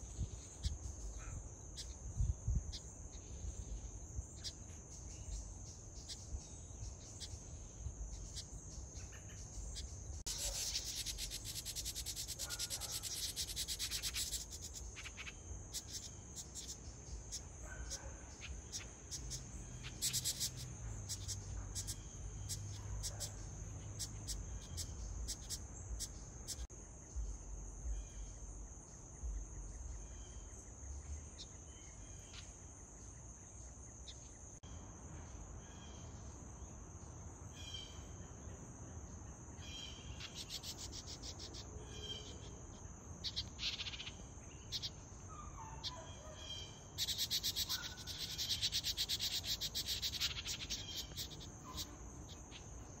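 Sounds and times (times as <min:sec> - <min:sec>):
insect trill: 0:00.0 - 0:53.0
wrens chattering: 0:10.3 - 0:14.9.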